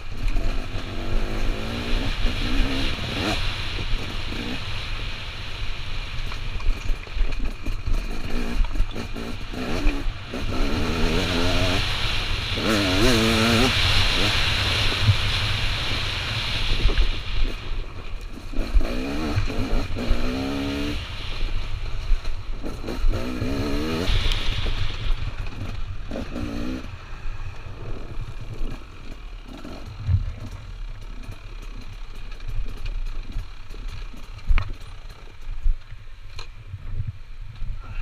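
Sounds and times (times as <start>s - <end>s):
dirt bike engine revving: 0.0s - 5.6s, 7.4s - 35.4s
wind on microphone: 0.0s - 29.0s.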